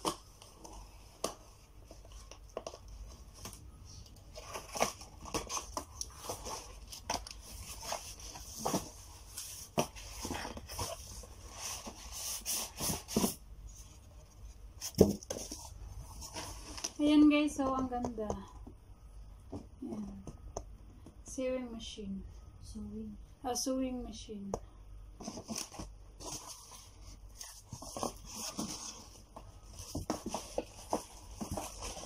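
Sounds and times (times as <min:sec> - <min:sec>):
cardboard flaps scraping and rustling: 0:04.3 - 0:14.0, 0:25.2 - 0:32.0.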